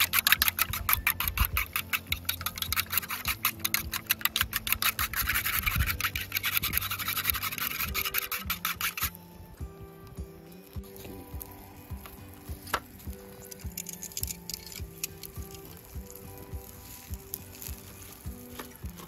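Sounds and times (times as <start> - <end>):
chopsticks whisking eggs in metal cup: 0.0 - 9.1.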